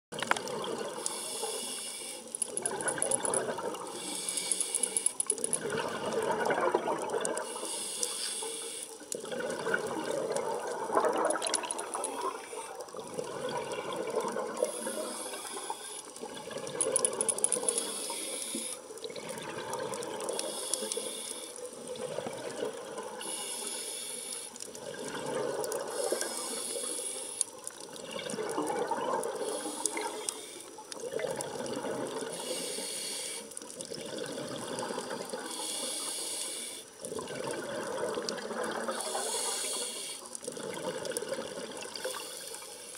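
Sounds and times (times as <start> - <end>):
exhaled bubbles underwater: 0.1 - 1.7, 2.5 - 4.3, 5.3 - 7.9, 9.0 - 23.8, 24.7 - 32.9, 33.6 - 36.3, 36.9 - 42.7
diver breathing through regulator: 1.0 - 2.4, 3.3 - 5.2, 7.4 - 9.0, 14.6 - 16.1, 17.6 - 18.9, 20.3 - 21.6, 23.2 - 24.6, 25.8 - 27.5, 29.4 - 30.8, 32.3 - 33.6, 35.4 - 36.9, 38.9 - 40.4.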